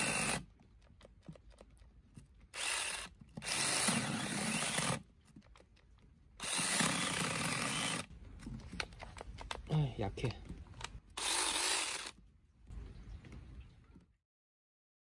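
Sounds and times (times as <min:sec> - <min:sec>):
cordless chainsaw cutting log: 0:00.0 - 0:00.5, 0:02.5 - 0:05.0, 0:06.4 - 0:08.1, 0:11.2 - 0:12.2.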